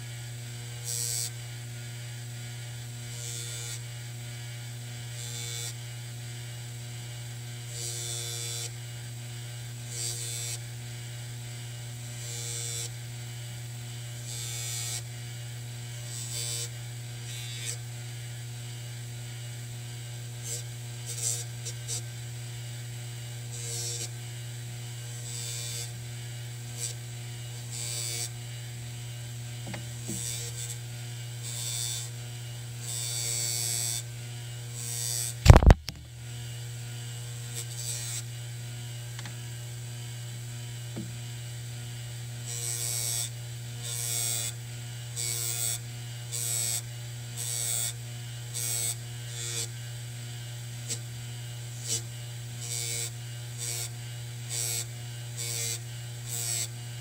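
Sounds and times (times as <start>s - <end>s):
bench buffer motor hum: 0.0s - 57.0s.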